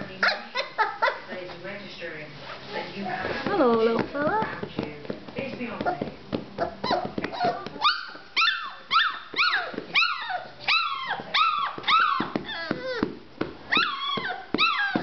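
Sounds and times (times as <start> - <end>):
puppy barking in high yips: 6.6 - 13.0.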